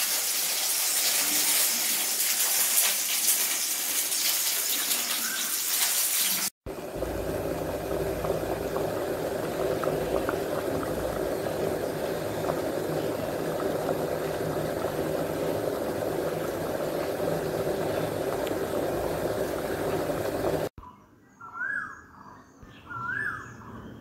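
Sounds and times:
pot boiling and bubbling: 0.0 - 20.8
wood fire: 6.7 - 20.7.

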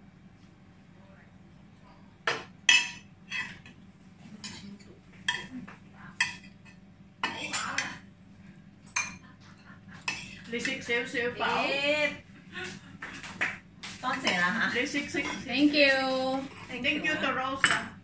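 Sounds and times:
cutlery clinking on plates: 2.3 - 3.8, 4.4 - 8.0, 8.9 - 9.2.

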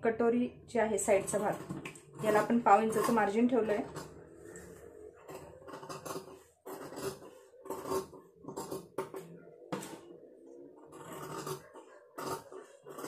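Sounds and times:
scissors snipping fabric: 5.2 - 9.2, 10.9 - 13.0.

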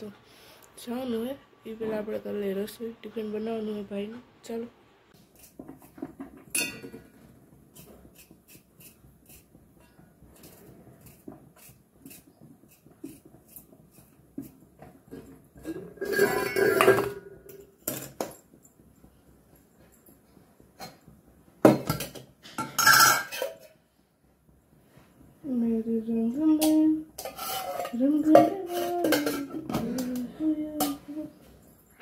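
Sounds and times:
steel utensils clattering: 5.8 - 7.1, 15.6 - 18.4, 21.8 - 23.8, 27.2 - 31.0
knife cutting vegetables: 7.7 - 9.5, 10.4 - 14.5.

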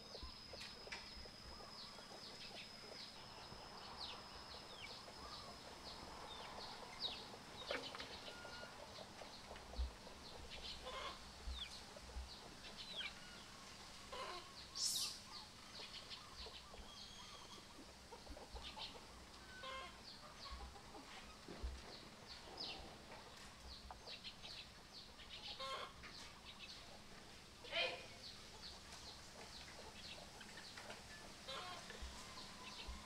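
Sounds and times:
poultry clucking: 0.0 - 33.0
bird chirps and calls: 14.1 - 17.7.

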